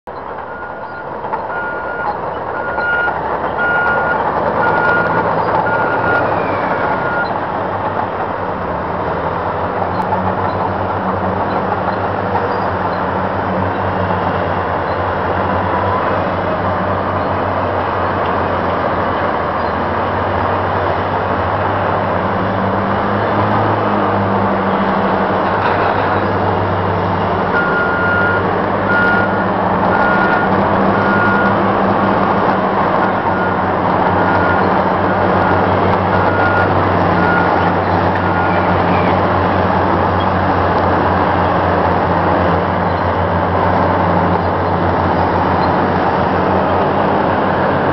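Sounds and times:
heavy diesel engines droning: 0.1s - 47.9s
backup alarm beeping: 0.5s - 6.3s, 27.6s - 31.6s.

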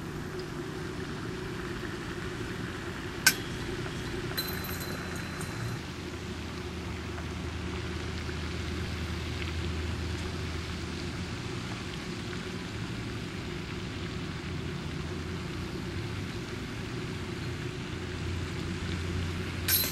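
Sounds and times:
steady low hum: 0.0s - 6.6s
continuous hiss: 0.0s - 19.9s.

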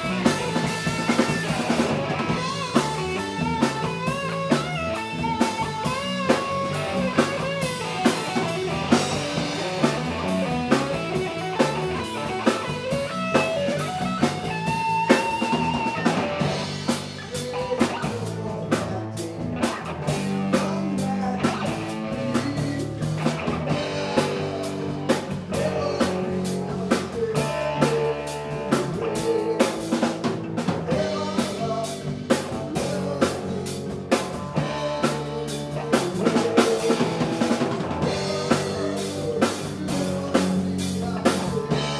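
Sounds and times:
bending electric guitar notes: 0.0s - 17.3s
live rock band: 0.0s - 41.9s.

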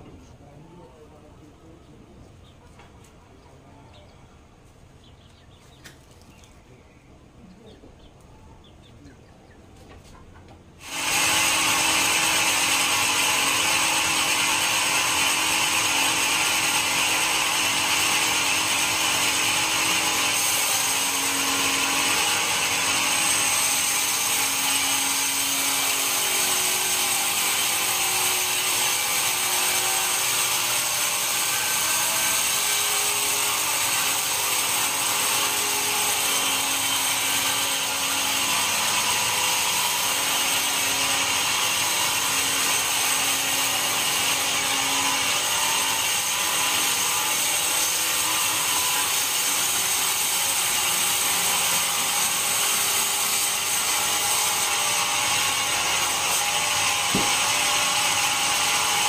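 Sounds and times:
band saw cutting through log: 10.8s - 59.0s.

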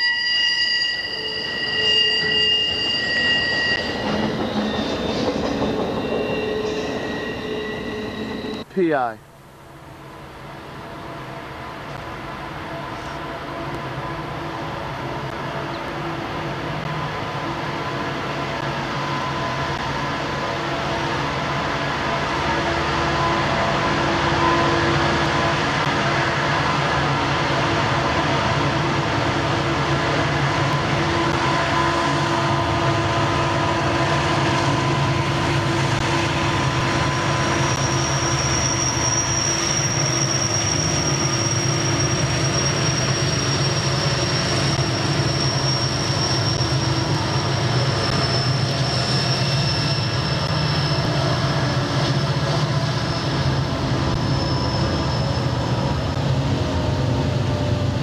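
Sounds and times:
thin high-pitched whine: 0.0s - 8.9s
diesel locomotive engines droning: 0.0s - 58.0s.

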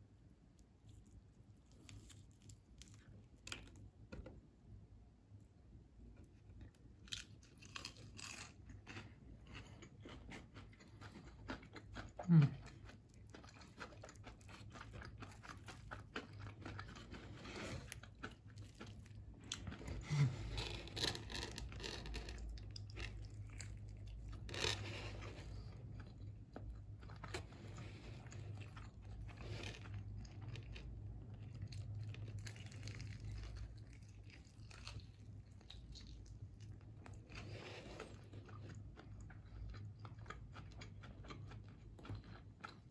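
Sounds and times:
chewing crispy fried chicken: 0.5s - 4.2s, 6.0s - 42.9s.

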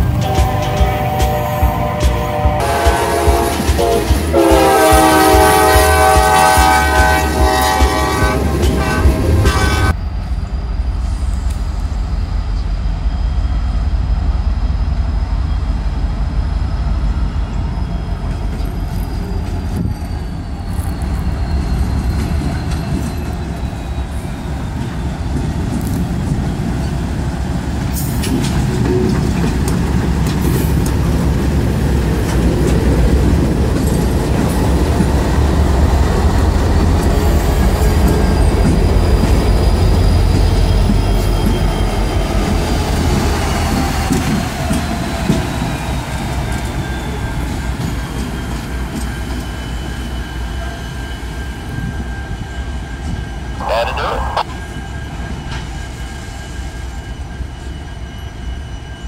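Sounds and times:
locomotive engines rumbling: 0.0s - 45.4s, 53.5s - 54.6s
high wheel squeal: 16.4s - 25.4s, 44.9s - 53.5s.

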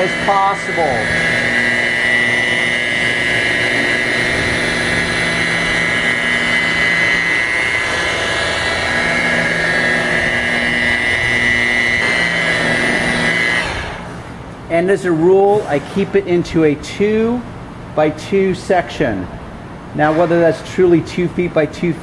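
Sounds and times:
rotary polisher motor whine: 0.0s - 14.4s.

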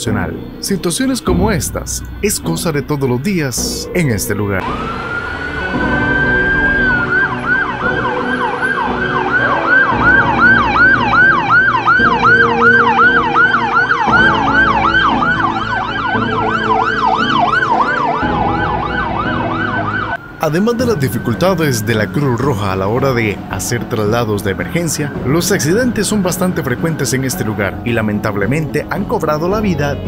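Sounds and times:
vehicle engines running: 0.0s - 29.8s
ambulance siren wailing and yelping: 4.5s - 27.8s.

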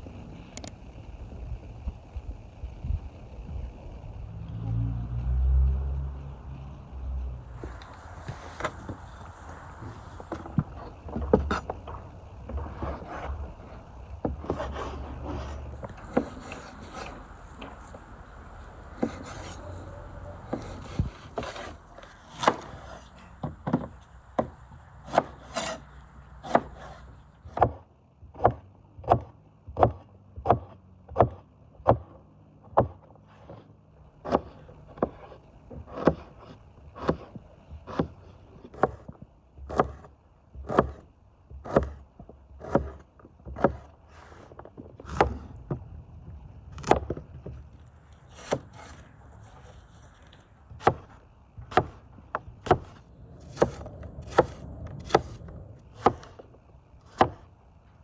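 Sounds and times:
knife chopping on wooden board: 20.5s - 25.8s, 26.4s - 33.6s, 34.2s - 37.3s, 37.9s - 42.0s, 42.6s - 45.5s, 48.3s - 49.0s, 50.8s - 55.4s, 56.0s - 56.4s, 57.1s - 57.5s.

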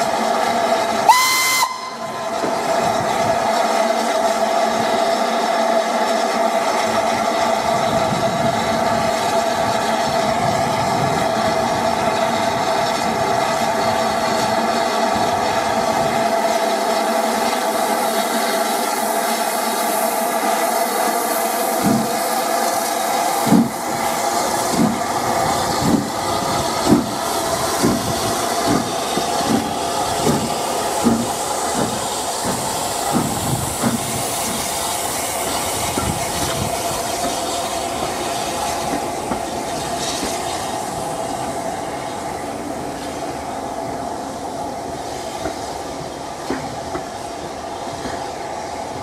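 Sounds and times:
coaches rumbling on rails: 0.0s - 49.0s
hiss of steam: 0.0s - 49.0s
steam locomotive exhaust chuffs: 0.0s - 49.0s.

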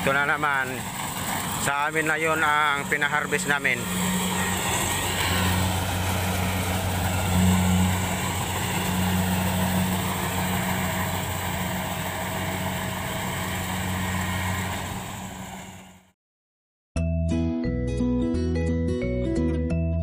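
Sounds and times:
combine harvester engine running: 0.0s - 16.1s.

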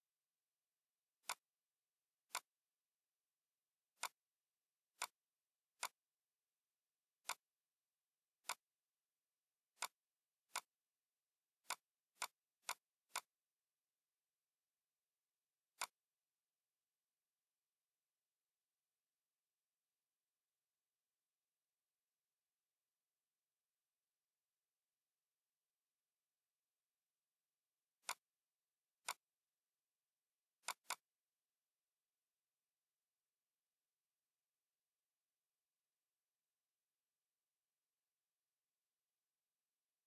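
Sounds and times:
computer mouse clicking: 1.2s - 1.5s, 2.3s - 2.6s, 4.0s - 4.2s, 4.9s - 5.2s, 5.8s - 6.0s, 7.2s - 7.5s, 8.4s - 8.7s, 9.8s - 10.7s, 11.6s - 13.4s, 15.7s - 16.0s, 28.0s - 28.3s, 29.0s - 29.3s, 30.6s - 31.2s.

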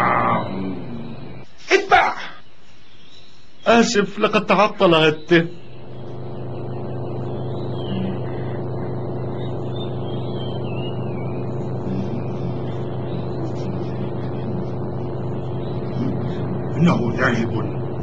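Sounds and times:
vehicle engine droning: 5.5s - 18.0s
faint wavering high tone: 5.6s - 18.0s.

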